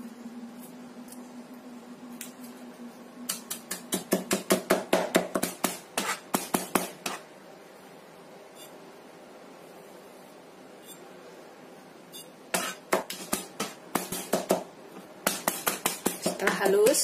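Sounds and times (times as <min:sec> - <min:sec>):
knife chopping garlic: 0:03.3 - 0:07.2, 0:12.5 - 0:17.0.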